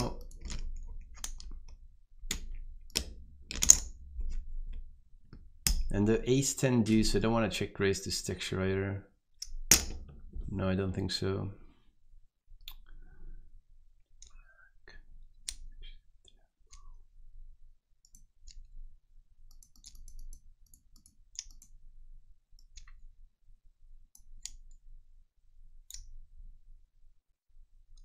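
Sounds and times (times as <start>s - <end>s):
computer mouse clicks: 18.0s - 18.7s, 19.5s - 21.8s, 24.1s - 24.8s.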